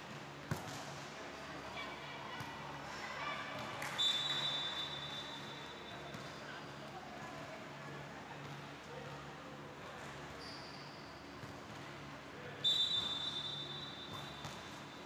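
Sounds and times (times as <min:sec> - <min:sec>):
sports hall hum: 0:00.0 - 0:15.0
referee's whistle blast: 0:12.6 - 0:14.4.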